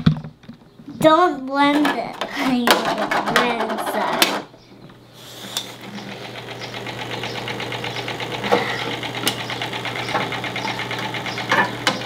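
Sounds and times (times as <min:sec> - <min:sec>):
toy blender motor buzzing: 0:05.3 - 0:12.0.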